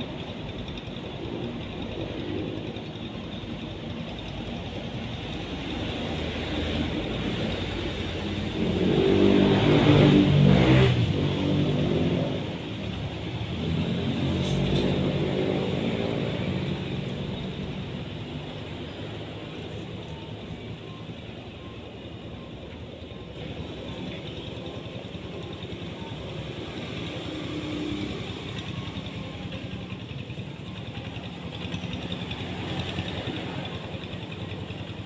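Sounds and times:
vehicle engine passing by: 5.8s - 19.9s.

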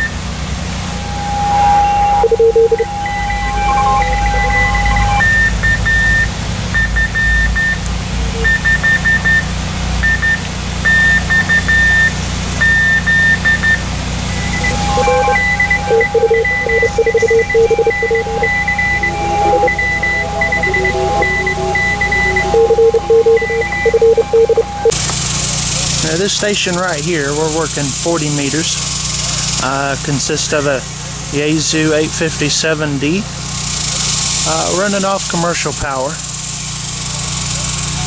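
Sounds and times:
long steady tone: 0.0s - 25.0s
low hum: 0.0s - 25.0s
morse code beeps: 0.8s - 25.0s.

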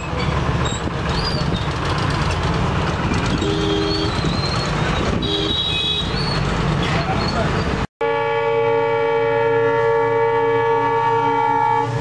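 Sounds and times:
diesel train rumbling: 0.0s - 12.0s
two-note train horn honks: 8.0s - 12.0s.

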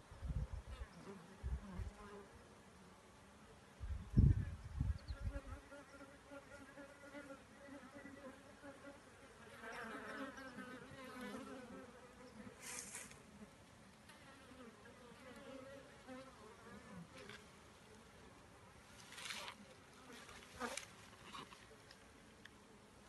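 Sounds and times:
brief hiss: 12.6s - 13.2s.

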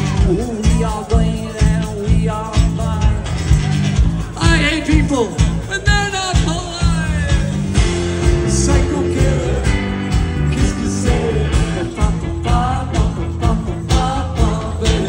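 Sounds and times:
live rock band playing: 0.0s - 15.0s
person singing: 4.1s - 15.0s.

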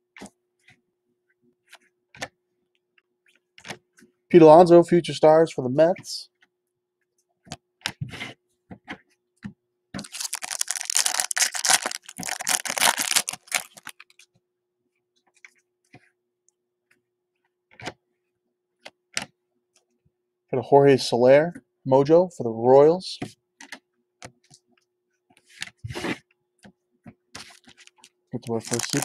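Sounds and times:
foil wrapper tearing and crinkling: 10.0s - 14.2s, 27.5s - 29.0s
cards clicking: 28.5s - 29.0s.

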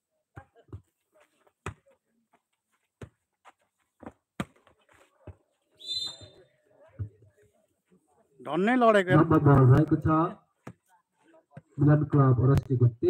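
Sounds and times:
referee's whistle: 5.8s - 6.4s.

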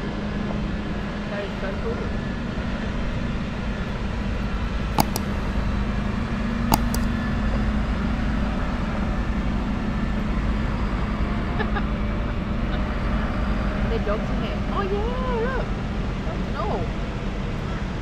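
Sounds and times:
diesel truck engines rumbling: 0.0s - 18.0s
short sharp clicks: 5.0s - 5.4s, 6.7s - 7.1s.

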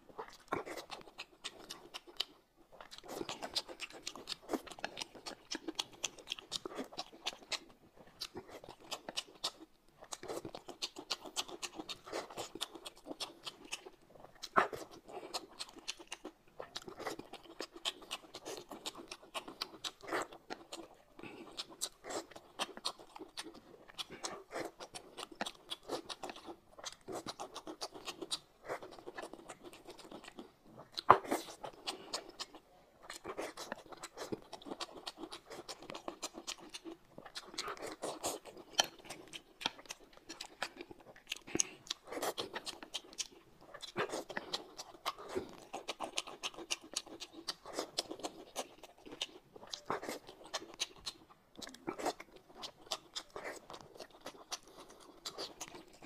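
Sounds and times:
man chewing and slurping: 0.1s - 56.0s.

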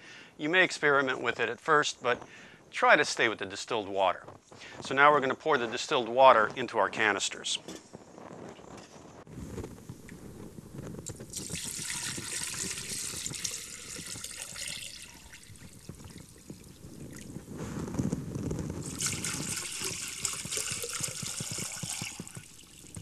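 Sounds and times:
water pouring from a jug: 11.0s - 23.0s.

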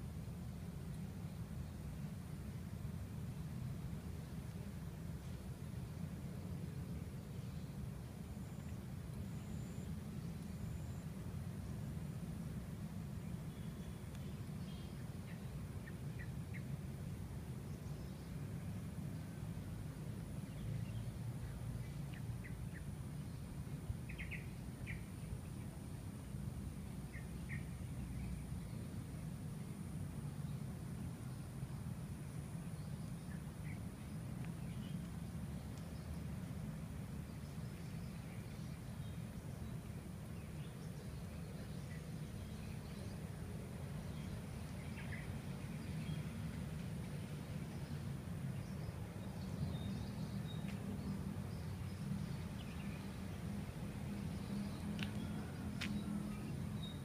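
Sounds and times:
faint high whine: 0.0s - 57.0s
faint bird chirps: 8.4s - 11.2s
small birds chirping: 32.6s - 57.0s.

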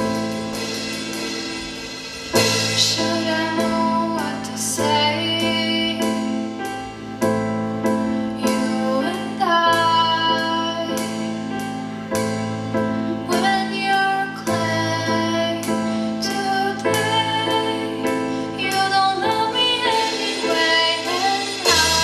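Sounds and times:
keyboard chords: 0.0s - 22.0s
woman singing: 2.7s - 6.7s, 8.3s - 11.4s, 13.1s - 22.0s.

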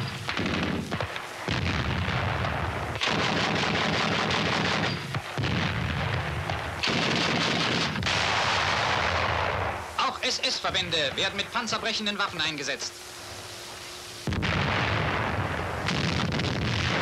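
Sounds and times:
anti-aircraft gun firing bursts: 0.0s - 9.8s, 14.2s - 17.0s.

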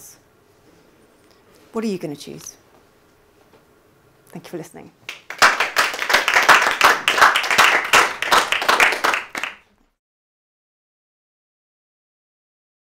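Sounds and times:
small audience applauding: 5.1s - 9.7s.

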